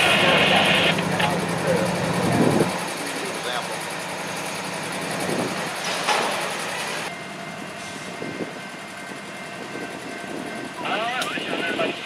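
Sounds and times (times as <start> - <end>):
diesel locomotives rumbling: 0.0 - 12.0
loud metal clank: 5.8 - 6.5.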